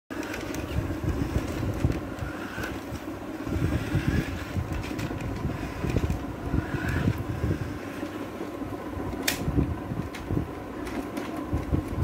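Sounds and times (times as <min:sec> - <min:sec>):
toy motor and gears whirring: 0:00.1 - 0:08.4.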